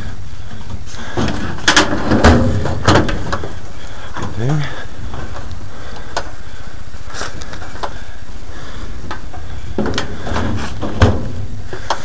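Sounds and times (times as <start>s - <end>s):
crackling handling noise: 0.0s - 12.0s
knocks and thump: 0.6s - 4.4s, 9.7s - 12.0s.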